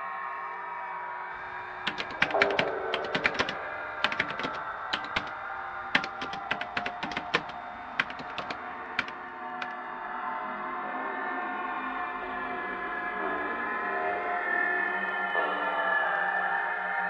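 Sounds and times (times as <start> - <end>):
typing on computer keyboard: 1.4 - 9.8.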